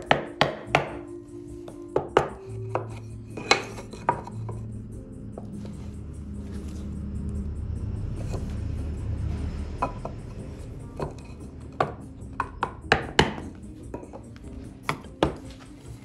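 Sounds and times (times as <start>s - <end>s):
mallet knocking on wooden chisel: 0.0s - 1.1s, 1.7s - 4.6s, 11.0s - 14.2s, 14.8s - 15.5s.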